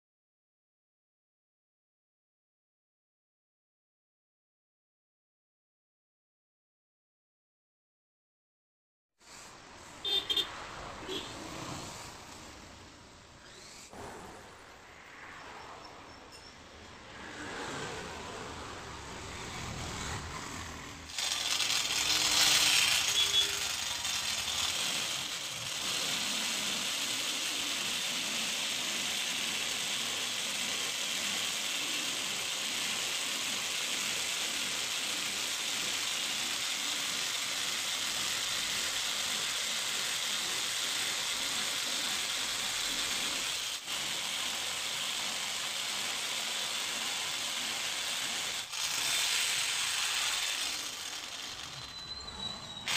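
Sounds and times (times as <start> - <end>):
electric jigsaw cutting wood: 21.0 - 51.9.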